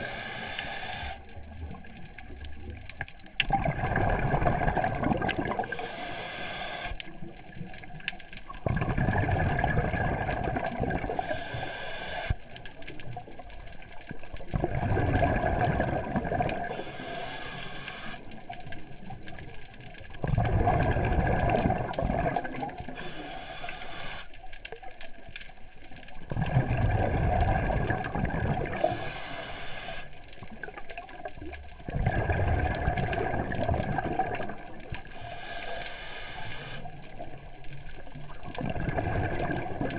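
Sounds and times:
regulator inhalation hiss: 0:00.0 - 0:01.3, 0:05.6 - 0:07.0, 0:11.1 - 0:12.4, 0:16.7 - 0:18.3, 0:22.9 - 0:24.4, 0:28.8 - 0:30.2, 0:35.1 - 0:36.9
bubbling exhaled air underwater: 0:00.0 - 0:24.2, 0:26.2 - 0:39.9.

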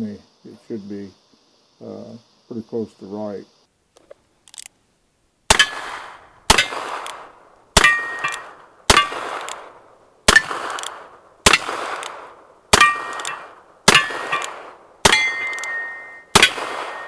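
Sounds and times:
steel target clanging: 0:07.8 - 0:09.2, 0:12.8 - 0:17.0.

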